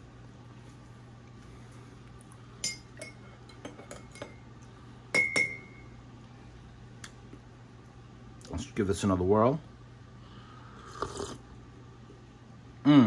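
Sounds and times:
spoon clinking in a mug: 2.6s - 4.4s, 5.1s - 5.8s.

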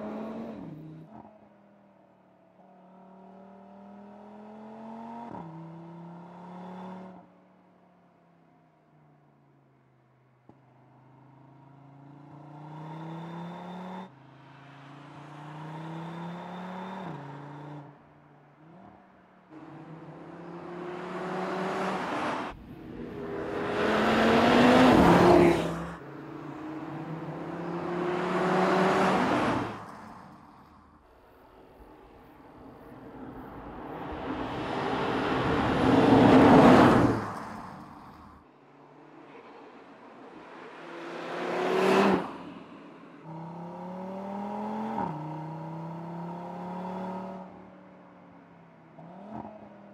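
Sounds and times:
car engine accelerating hard: 18.6s - 31.0s
car engine passing by: 19.6s - 38.4s, 39.1s - 47.6s.

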